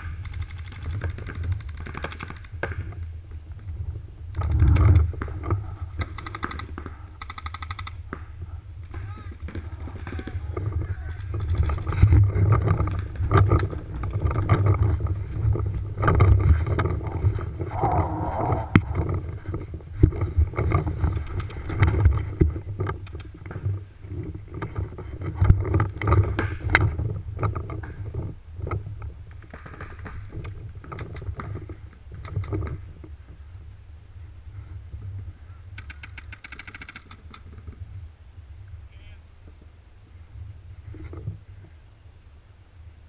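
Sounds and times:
steady low rumble: 0:02.8 - 0:25.7.

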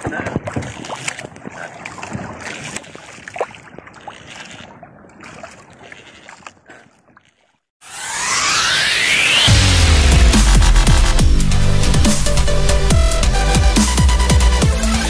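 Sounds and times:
wind and water noise: 0:00.0 - 0:08.8
electronic whoosh sound effect: 0:07.8 - 0:11.2.

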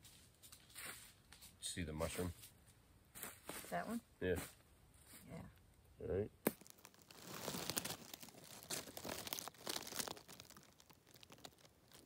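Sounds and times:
dry leaves rustling and crackling: 0:06.5 - 0:12.0.

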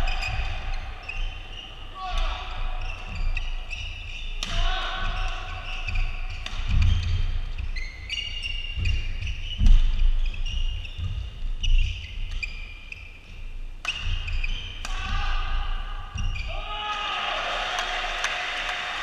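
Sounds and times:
shoes squeaking on court: 0:00.0 - 0:15.1, 0:16.1 - 0:16.7
racket hitting shuttlecock: 0:04.4 - 0:05.3, 0:05.9 - 0:07.2, 0:13.8 - 0:15.2.

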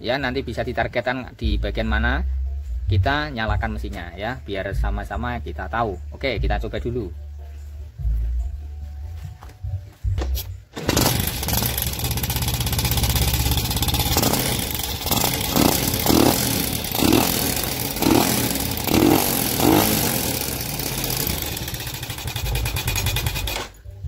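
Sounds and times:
motorcycle engine starting: 0:10.7 - 0:24.0
engine rough clattering rattle: 0:10.8 - 0:23.8.

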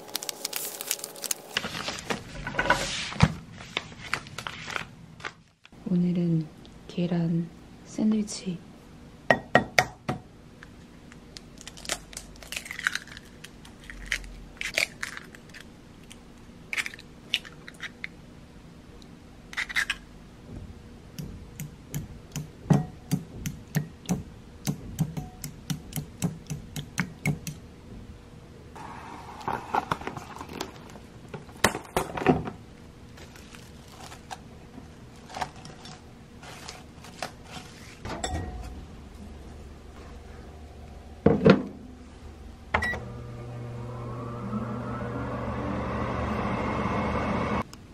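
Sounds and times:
cling wrap crinkling and tearing: 0:00.0 - 0:02.2, 0:11.6 - 0:15.7, 0:33.2 - 0:38.0.

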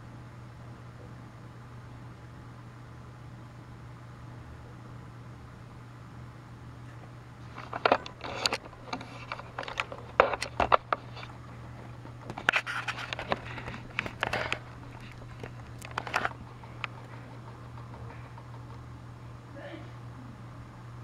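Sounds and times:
steady low hum: 0:00.0 - 0:21.0
handling clicks knocks and scrapes: 0:06.9 - 0:18.9.

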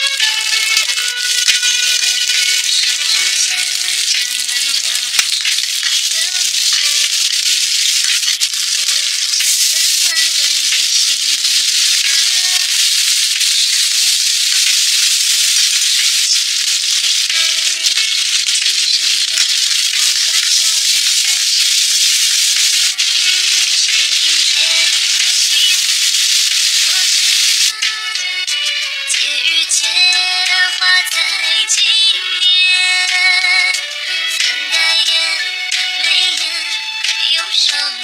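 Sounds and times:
oil sizzling in a wok: 0:00.0 - 0:29.0.

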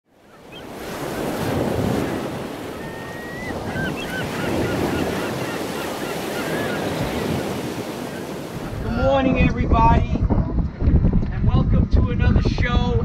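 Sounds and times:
ocean waves washing in: 0:00.1 - 0:09.2.

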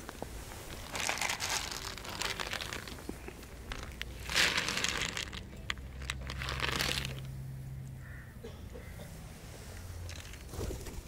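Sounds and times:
dry kibble spilling on concrete: 0:00.6 - 0:07.3
plastic bag crinkling: 0:00.6 - 0:07.3.

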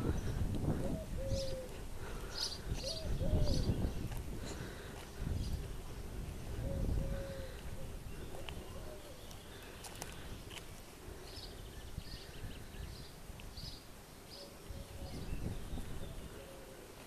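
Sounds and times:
bird chirping: 0:01.0 - 0:04.7.

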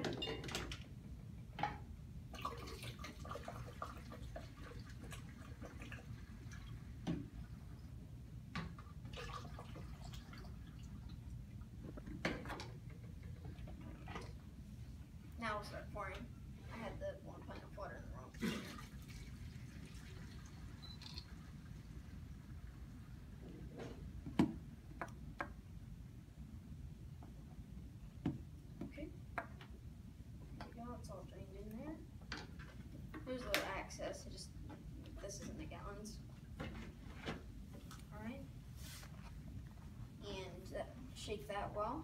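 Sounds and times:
low steady background noise: 0:00.0 - 0:42.0
liquid pouring through funnel: 0:02.3 - 0:06.8, 0:09.0 - 0:11.3, 0:18.4 - 0:23.1.

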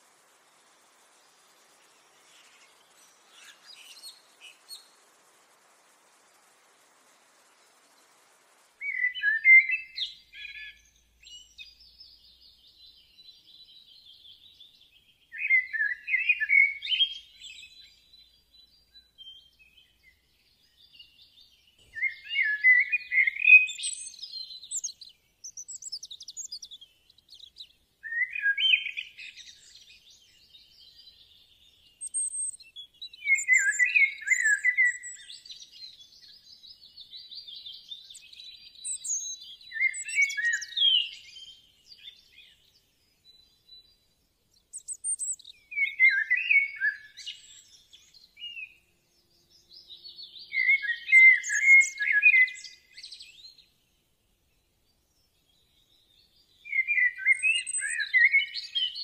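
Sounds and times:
bird chirping and whistling: 0:08.8 - 0:11.6, 0:33.2 - 0:35.4, 0:38.8 - 0:41.5, 0:44.7 - 0:47.6, 0:50.5 - 0:53.2, 0:56.7 - 0:59.0.

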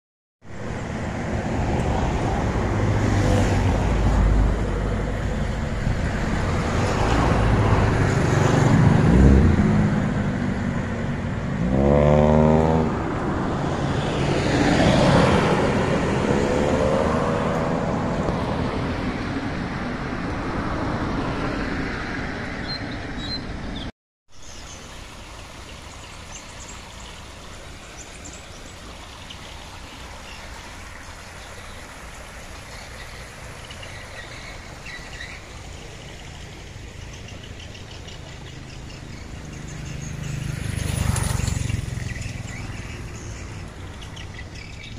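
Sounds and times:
road traffic passing: 0:00.4 - 0:44.9
vehicle engine rising and falling: 0:00.6 - 0:19.6
running water: 0:24.3 - 0:44.9.

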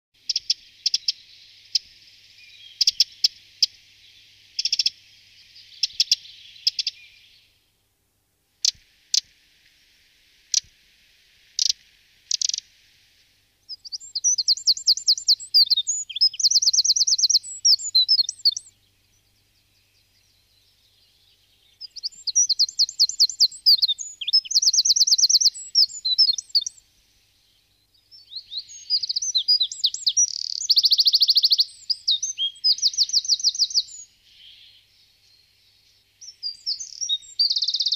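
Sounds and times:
wren singing trilling phrases: 0:00.2 - 0:07.6, 0:08.6 - 0:09.3, 0:10.5 - 0:10.7, 0:11.5 - 0:12.8, 0:13.5 - 0:37.9
background hiss: 0:00.2 - 0:37.9
sharp scattered ticks: 0:11.5 - 0:12.7.

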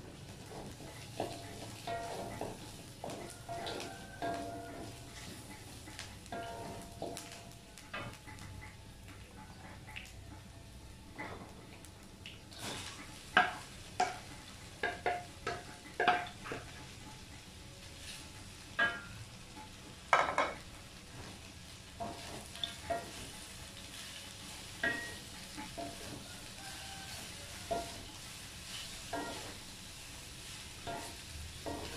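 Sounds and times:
light sizzle: 0:00.0 - 0:31.9
spatula clacking against wok: 0:00.3 - 0:10.5, 0:13.3 - 0:17.4, 0:18.8 - 0:20.6, 0:22.0 - 0:24.1, 0:24.7 - 0:29.7, 0:30.4 - 0:31.9.

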